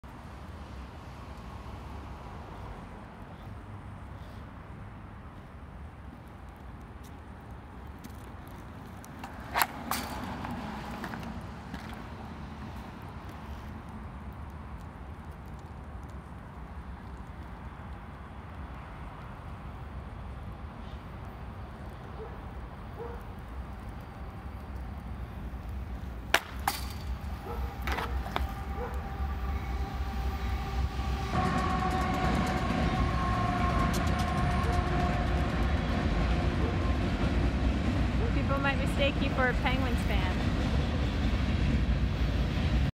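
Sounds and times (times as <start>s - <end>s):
skate wheels rolling on asphalt: 0.0s - 42.9s
hockey stick hitting ball: 9.2s - 10.3s, 26.3s - 27.2s
freight train rumbling past: 25.2s - 42.9s.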